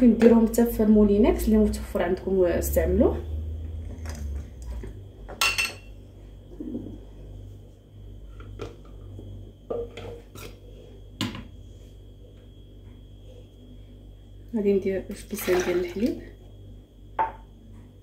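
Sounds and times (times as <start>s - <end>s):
kitchenware knocking and clinking: 5.3s - 5.9s, 17.2s - 17.4s.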